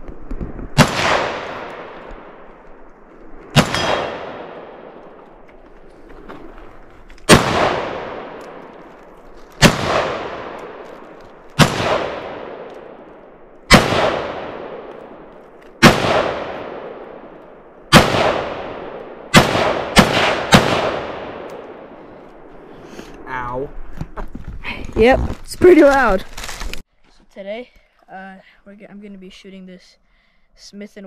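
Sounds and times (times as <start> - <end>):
rifle shots with echo: 0.7 - 2.7, 3.4 - 5.4, 7.3 - 8.9, 9.6 - 22.1.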